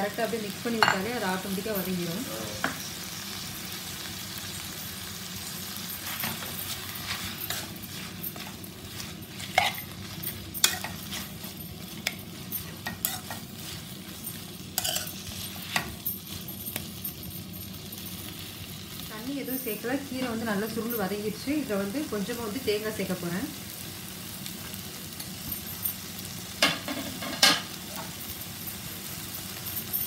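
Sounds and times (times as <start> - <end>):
food sizzling in a pan: 0.0 - 30.0
spoon clinking against metal pan: 0.8 - 1.2, 9.5 - 13.4, 14.8 - 16.0.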